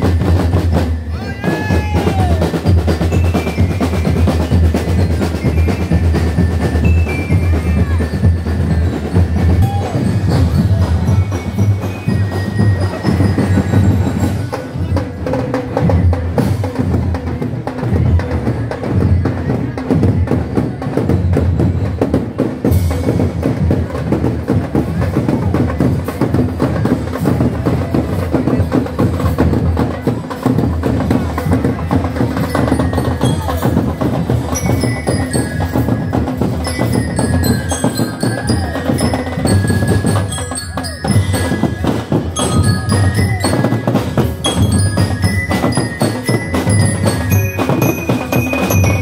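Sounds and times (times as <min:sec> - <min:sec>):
drums beating fast rhythm: 0:00.0 - 0:49.0
mallet instrument ringing notes: 0:32.4 - 0:49.0.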